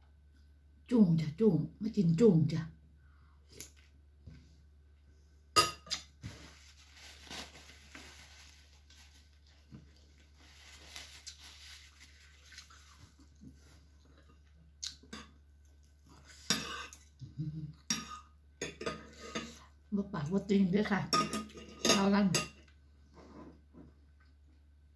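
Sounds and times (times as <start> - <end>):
tissue paper rustling: 6.2 - 13.6
cutlery scraping bowl: 17.9 - 19.6, 21.1 - 22.6.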